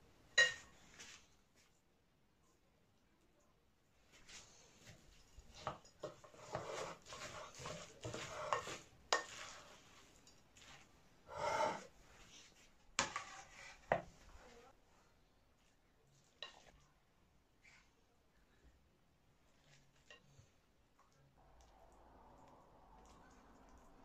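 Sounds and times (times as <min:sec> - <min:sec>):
spoon stirring wet filling: 0:04.2 - 0:18.0, 0:19.4 - 0:24.0.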